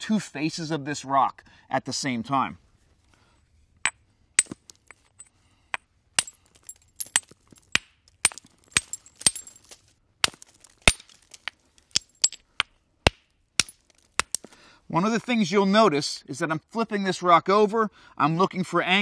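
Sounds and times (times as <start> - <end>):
hammerstone clinking on stone: 3.8 - 9.8, 10.5 - 12.4.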